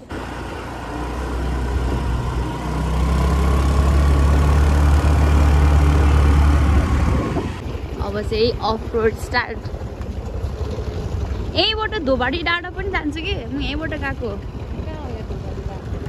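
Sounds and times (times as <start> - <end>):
scooter engine running: 0.0 - 16.0
wind noise on microphone: 6.5 - 11.8.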